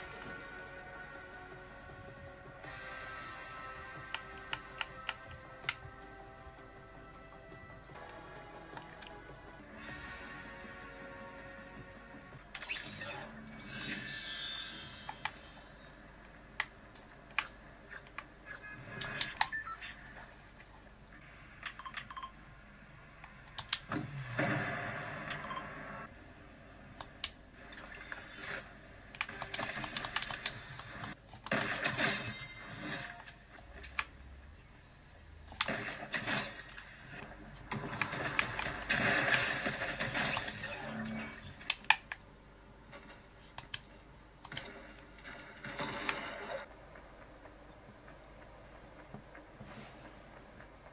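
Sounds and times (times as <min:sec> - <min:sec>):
game clicks and beeps: 0:00.0 - 0:20.6, 0:21.4 - 0:22.5, 0:23.2 - 0:26.1
sharp clicks: 0:23.2 - 0:24.0.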